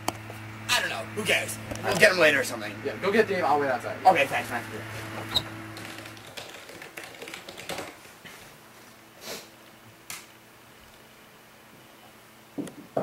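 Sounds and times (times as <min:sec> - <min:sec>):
computer keyboard typing: 0:05.8 - 0:08.0.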